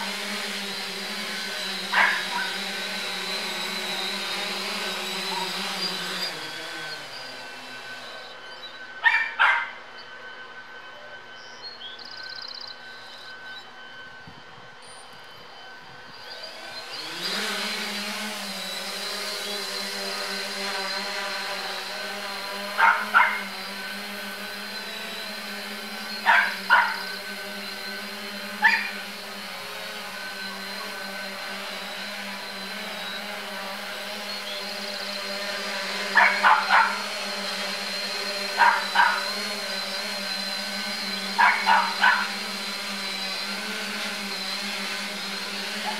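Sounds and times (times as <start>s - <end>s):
drone propellers humming: 0.0s - 45.9s
dog barking: 1.9s - 2.6s, 9.0s - 9.8s, 22.8s - 23.5s, 26.3s - 27.0s, 28.6s - 28.9s, 36.2s - 37.0s, 38.6s - 39.3s, 41.4s - 42.4s.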